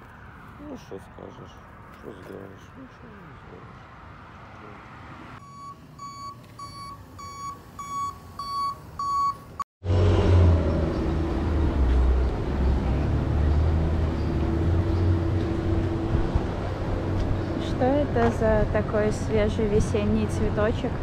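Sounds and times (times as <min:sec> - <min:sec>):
vehicle reversing alarm beeping: 0:05.4 - 0:09.6.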